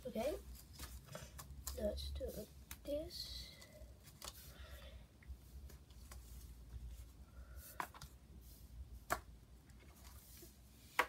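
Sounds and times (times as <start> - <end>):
light plastic rustling: 0.2 - 4.7.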